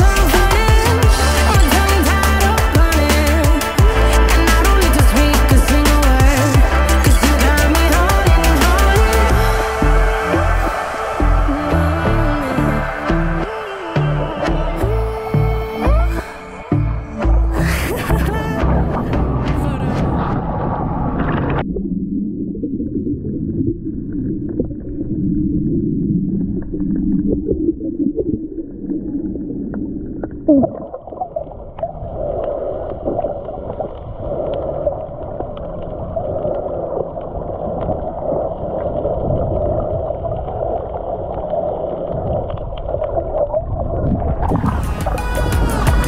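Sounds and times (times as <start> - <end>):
seawater sloshing and gurgling: 26.4 - 46.0.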